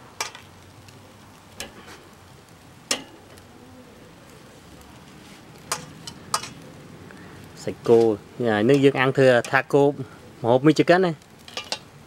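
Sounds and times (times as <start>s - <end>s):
meat sizzling over coals: 0.0s - 12.0s
metal tongs clacking on grill: 0.2s - 0.6s, 1.6s - 1.8s, 2.9s - 3.4s, 5.6s - 6.6s, 7.8s - 9.8s, 11.4s - 11.9s.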